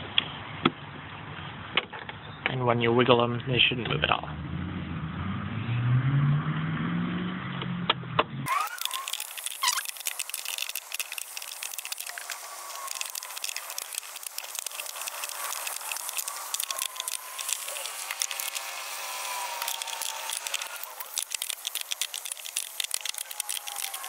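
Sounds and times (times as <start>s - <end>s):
wrench clicking and rattling: 8.5s - 24.0s.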